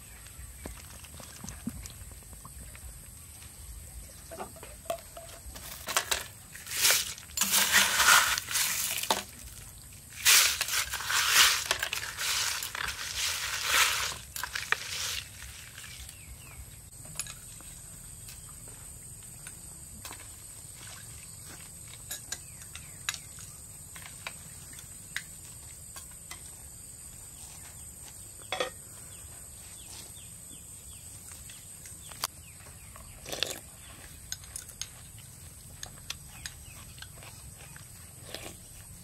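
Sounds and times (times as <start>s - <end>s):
ice crunching and clinking in bowl: 4.6s - 16.2s.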